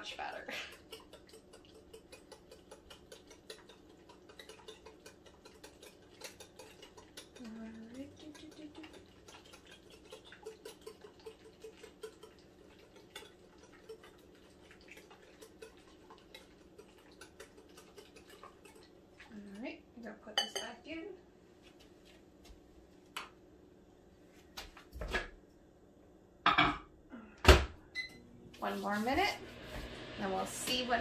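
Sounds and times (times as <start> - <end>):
whisk ticking against glass bowl: 0.0 - 19.0.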